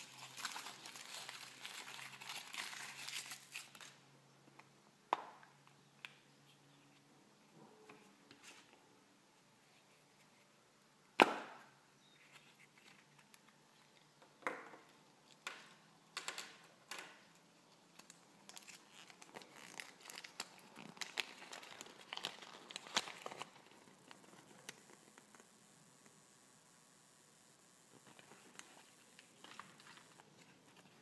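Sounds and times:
paper crinkling: 0.0 - 4.0, 17.7 - 25.5, 27.9 - 31.0.

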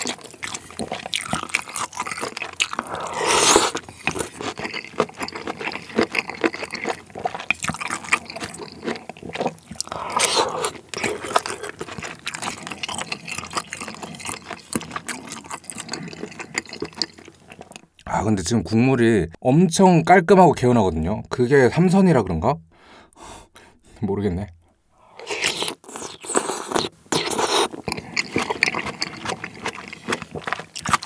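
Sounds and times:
slurping noodles: 0.0 - 17.7, 25.1 - 31.0
wet chewing: 0.0 - 18.0, 25.2 - 31.0.

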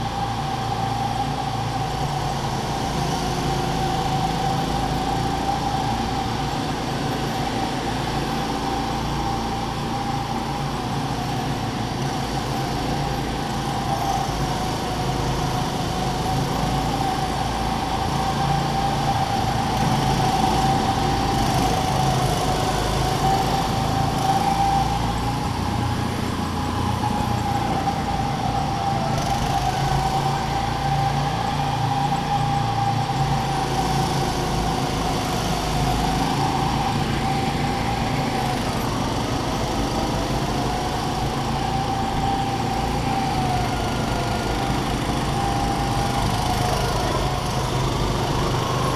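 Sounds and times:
go-kart motor whine: 0.0 - 48.9.

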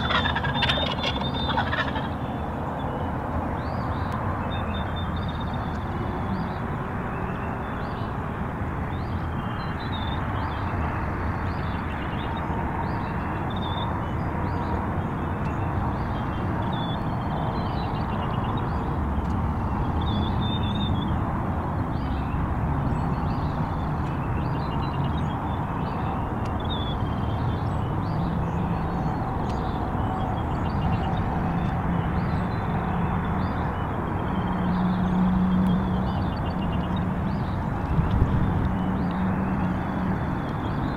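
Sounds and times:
small birds chirping: 0.0 - 3.0.

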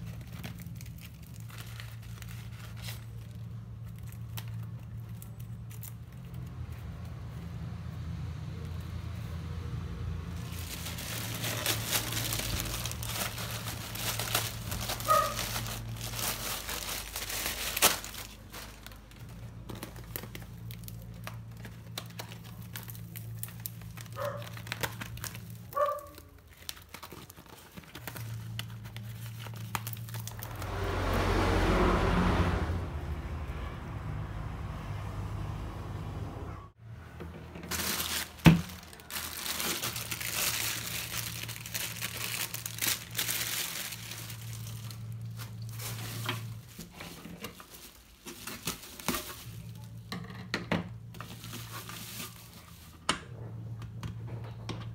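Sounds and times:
plastic packaging crinkling: 0.0 - 7.4, 10.2 - 30.7, 37.6 - 50.1, 51.0 - 53.0.

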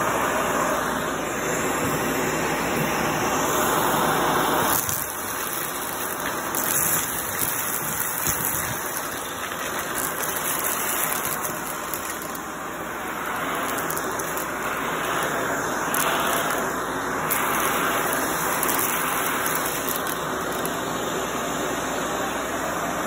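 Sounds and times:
vacuum cleaner on carpet: 0.0 - 23.0
debris clicking in wand: 4.7 - 16.7, 17.3 - 20.8.

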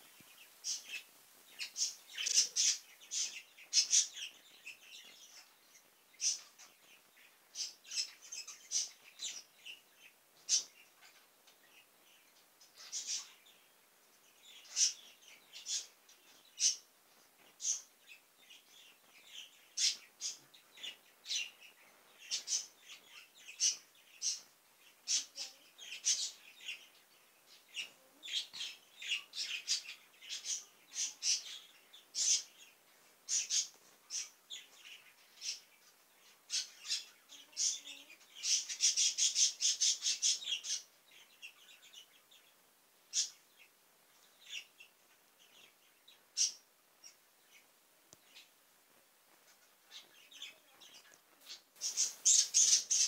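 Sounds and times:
bird chirping and squawking: 1.6 - 4.1, 51.8 - 53.0.

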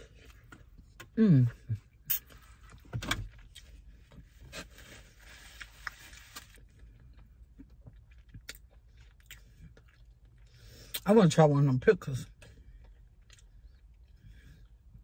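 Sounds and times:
paper wrapper rustling: 4.7 - 6.6.

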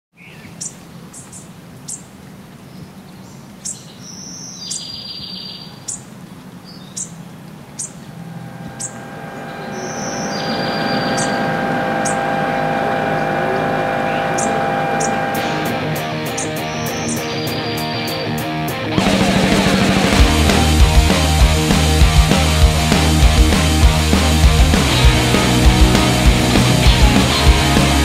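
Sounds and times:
small birds chirping: 0.2 - 11.4, 16.3 - 18.5
background music of sustained notes: 8.0 - 28.0.

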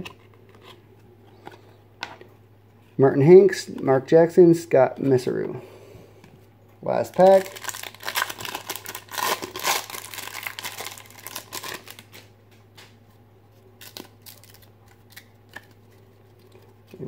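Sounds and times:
steady low hum: 0.0 - 17.0
foil wrapper crinkling and tearing: 7.0 - 12.3, 13.8 - 16.6.

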